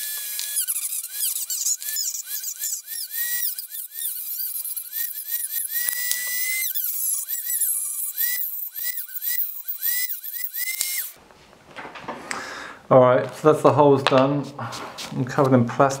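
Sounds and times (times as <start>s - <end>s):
rotary tool cutting plastic: 0.0s - 11.2s.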